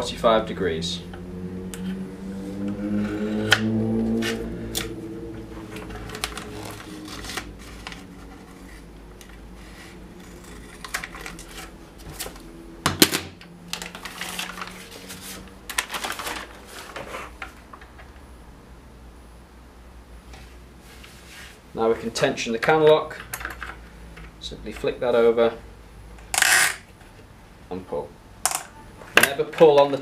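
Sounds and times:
low pitched hum: 0.0 - 20.8.

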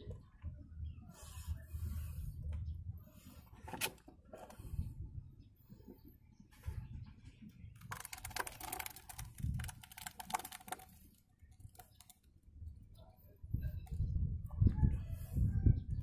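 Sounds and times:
plastic blender jar rattling: 7.8 - 12.2.

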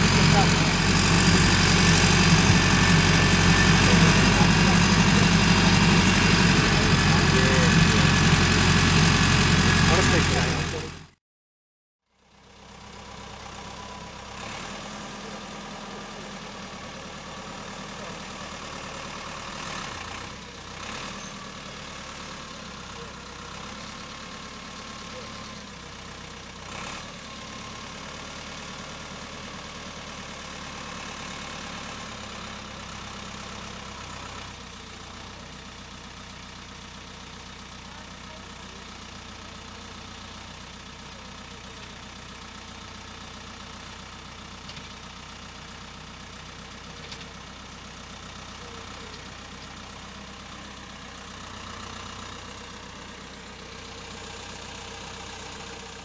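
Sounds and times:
loader scraping: 0.0 - 11.0, 44.5 - 56.0
tractor diesel engine running: 0.0 - 11.2, 12.2 - 56.0.

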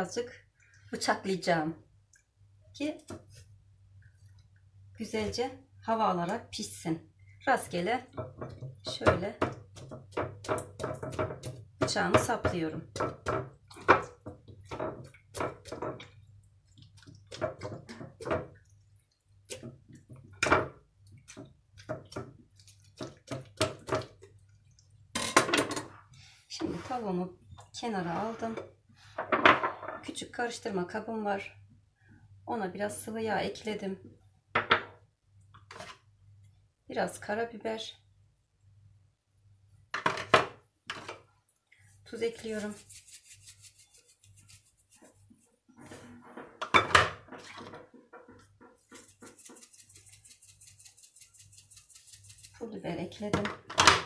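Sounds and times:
spice container rustling and clatter: 48.3 - 52.6.

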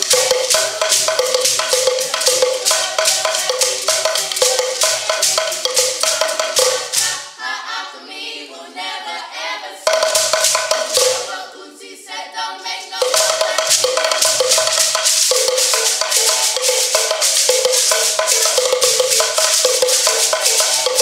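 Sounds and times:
gourd shakers rattling: 0.0 - 7.3, 9.9 - 11.3, 13.0 - 21.0
hand drum: 0.0 - 7.3, 9.9 - 11.4, 13.0 - 21.0
voices singing together: 0.0 - 21.0.

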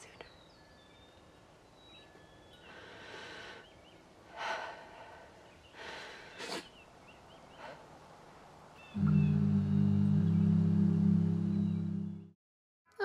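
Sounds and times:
faint bird chirps: 0.0 - 4.1, 8.8 - 10.7.

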